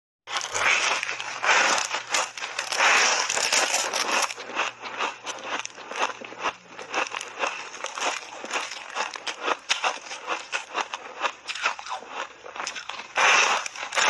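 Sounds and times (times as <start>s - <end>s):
ice crunching while chewed: 0.3s - 14.0s.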